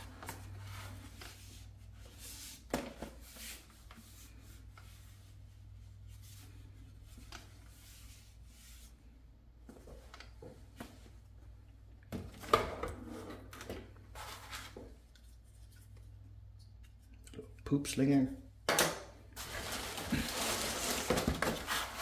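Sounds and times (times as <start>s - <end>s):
rustling of foam packaging: 19.4s - 22.0s.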